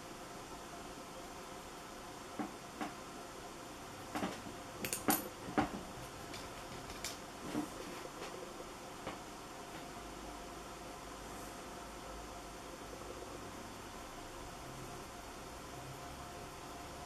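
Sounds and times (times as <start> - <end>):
small objects clicking and knocking: 6.3 - 7.2.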